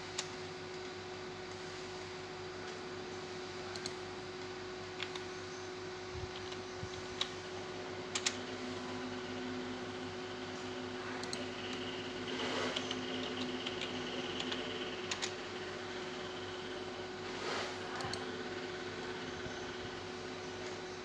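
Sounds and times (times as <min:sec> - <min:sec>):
steady electrical hum: 0:00.0 - 0:21.0
computer mouse clicking: 0:03.7 - 0:04.0, 0:05.0 - 0:05.3, 0:06.3 - 0:07.4, 0:08.1 - 0:08.4, 0:11.2 - 0:15.4, 0:17.9 - 0:18.3.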